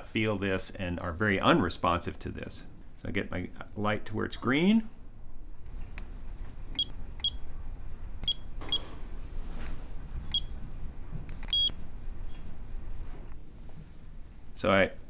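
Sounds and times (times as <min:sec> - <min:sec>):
short high beeps: 0:11.5 - 0:11.7.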